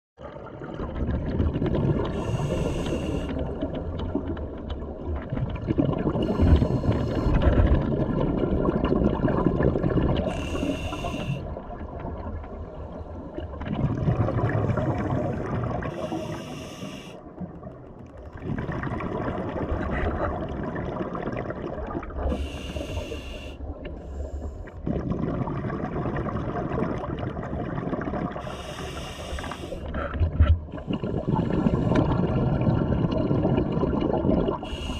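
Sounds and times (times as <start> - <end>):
bubbling exhalations underwater: 0.3 - 12.2, 13.4 - 16.1, 18.2 - 22.6, 24.8 - 28.9, 29.8 - 34.9
hissing regulator inhalations: 2.1 - 3.4, 10.3 - 11.4, 15.9 - 17.2, 22.3 - 24.7, 28.4 - 29.9, 34.6 - 34.9.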